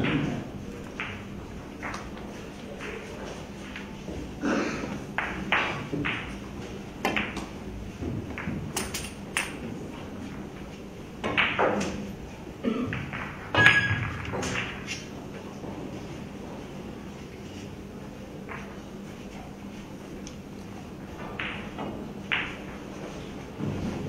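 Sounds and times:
cue striking ball: 0:00.0 - 0:02.2, 0:05.2 - 0:09.8, 0:11.2 - 0:15.2, 0:21.2 - 0:24.0
pool balls clacking: 0:00.0 - 0:16.6, 0:18.4 - 0:19.3, 0:20.5 - 0:24.0.

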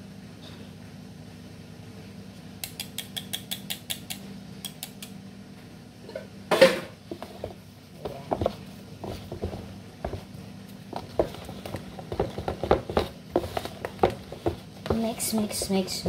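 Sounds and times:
wooden spoon stirring batter: 0:07.0 - 0:16.0.

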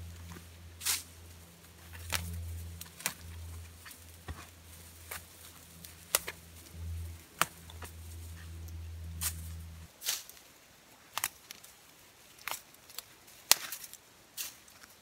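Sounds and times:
fir boughs rustling: 0:00.0 - 0:09.9
low rumble: 0:00.0 - 0:09.9
twigs snapping: 0:00.0 - 0:10.3, 0:11.1 - 0:11.7, 0:12.3 - 0:14.9.

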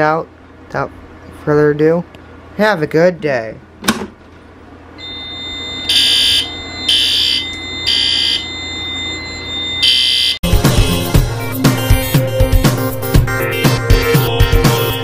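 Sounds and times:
fire alarm horn blasts: 0:05.0 - 0:10.4
steady high tone: 0:05.0 - 0:11.0.

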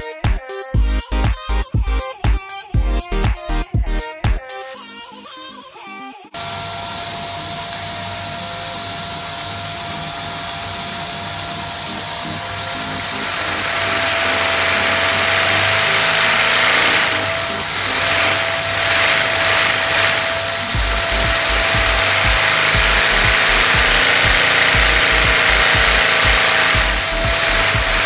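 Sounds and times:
fast rhythmic pulsing engine: 0:06.4 - 0:28.0
vacuum cleaner motor whine: 0:06.4 - 0:28.0.

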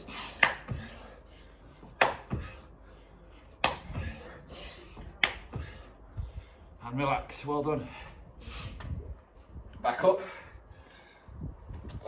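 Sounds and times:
sharp hand claps: 0:00.4 - 0:00.7, 0:02.0 - 0:02.4, 0:03.6 - 0:04.0, 0:05.2 - 0:05.6.

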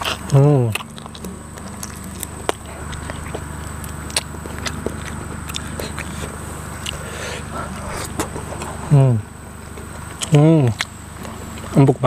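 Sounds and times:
mouth clicks: 0:00.0 - 0:08.7
person chewing meat: 0:00.0 - 0:09.0, 0:09.6 - 0:11.8
low steady hum: 0:00.0 - 0:12.0.

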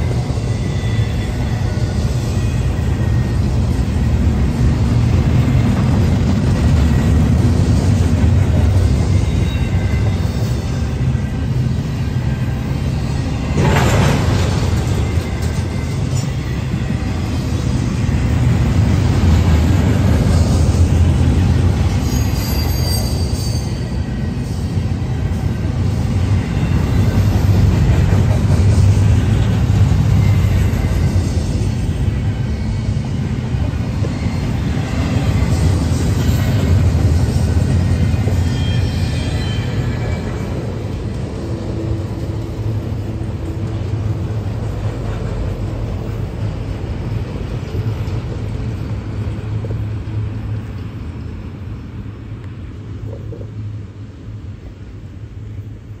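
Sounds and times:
high wheel squeal: 0:00.0 - 0:44.8
freight train wheels rumbling on rail: 0:00.0 - 0:56.0.

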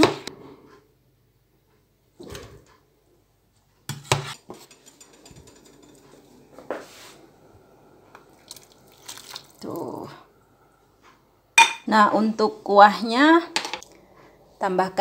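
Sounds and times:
metal pot and dishes clattering: 0:03.9 - 0:06.4, 0:11.6 - 0:11.9
water boiling in a pot: 0:04.4 - 0:10.6.

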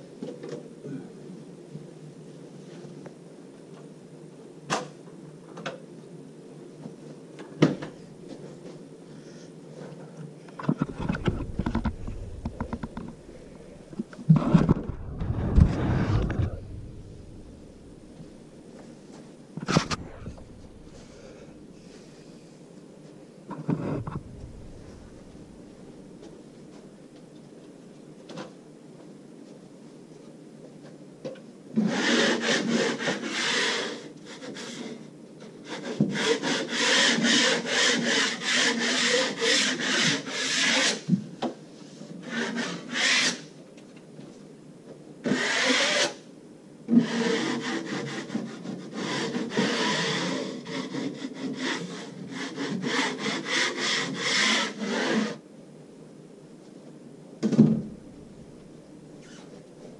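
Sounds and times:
hand-sanding rasping strokes: 0:31.9 - 0:34.8, 0:35.7 - 0:41.0, 0:42.2 - 0:43.4, 0:47.0 - 0:55.4.

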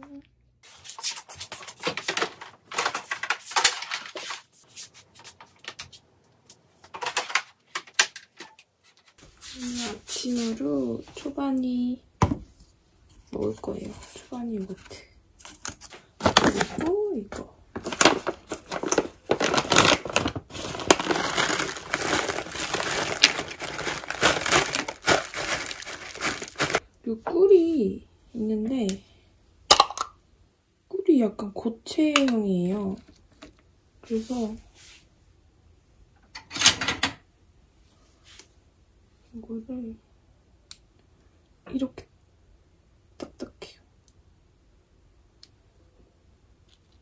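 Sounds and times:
packaging crinkling and rustling: 0:00.8 - 0:06.0, 0:06.8 - 0:08.6, 0:15.4 - 0:17.0, 0:17.7 - 0:26.8.

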